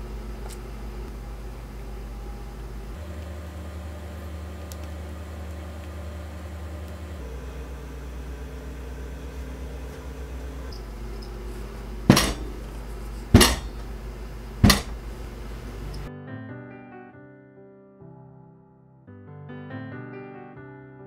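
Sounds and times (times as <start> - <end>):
low hum: 0.0 - 16.1.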